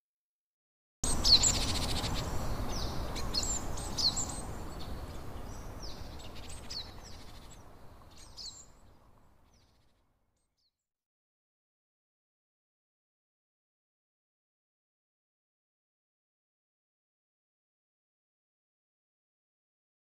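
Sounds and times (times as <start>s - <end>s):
birds chirping: 1.1s - 9.9s.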